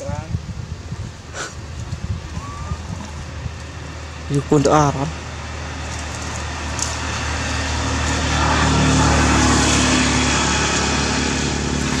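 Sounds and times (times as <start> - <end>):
small engine running: 4.4 - 12.0.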